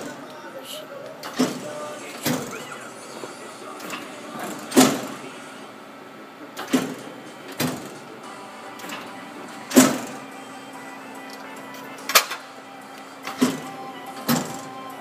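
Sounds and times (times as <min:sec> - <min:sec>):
press brake humming: 0:00.0 - 0:15.0
sharp machine clunks: 0:01.2 - 0:05.3, 0:06.5 - 0:10.2, 0:12.0 - 0:12.5, 0:13.2 - 0:14.8.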